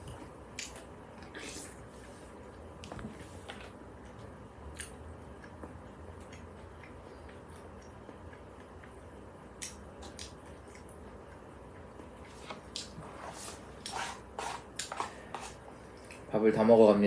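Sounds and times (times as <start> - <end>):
spoon scraping plastic bowl: 13.4 - 15.6.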